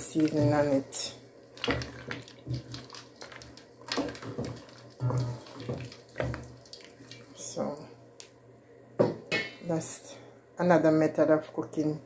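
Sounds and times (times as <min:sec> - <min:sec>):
wooden spoon stirring thick sauce: 0:00.0 - 0:07.4.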